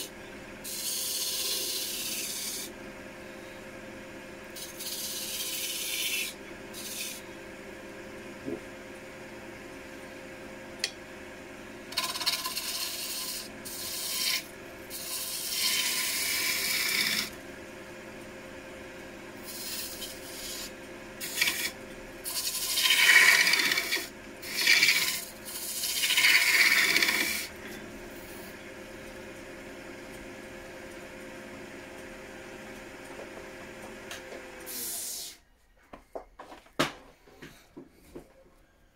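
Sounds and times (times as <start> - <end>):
lathe tool scraping wood: 0.0 - 2.7, 4.5 - 7.4, 11.9 - 17.4, 19.4 - 28.6
wood lathe humming: 0.0 - 8.6, 9.2 - 35.0.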